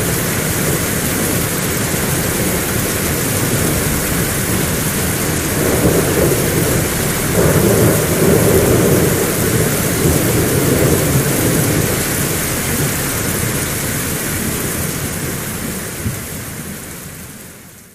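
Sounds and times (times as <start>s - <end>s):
thunder rumbling: 0.0s - 16.3s
heavy rain falling: 0.0s - 17.9s.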